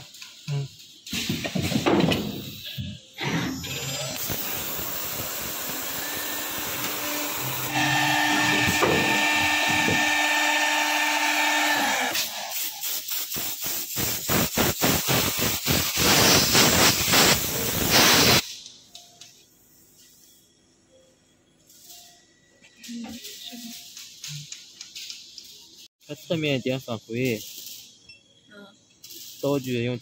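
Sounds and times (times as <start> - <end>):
cnc machine cutting board: 3.3 - 12.5
dust extraction running: 3.6 - 12.5.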